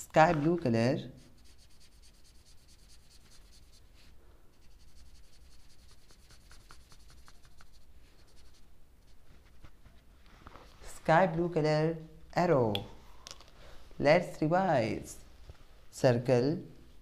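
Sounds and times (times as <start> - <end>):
marker scribbling on paper: 1.2 - 9.2.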